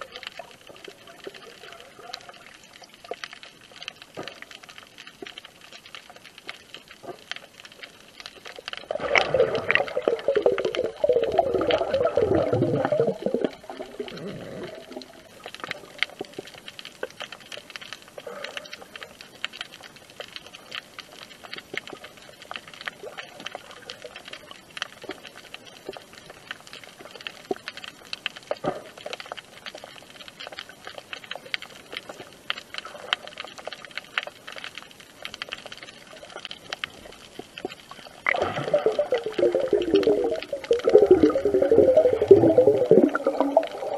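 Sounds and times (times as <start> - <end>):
underwater crackling clicks: 0.0 - 43.9.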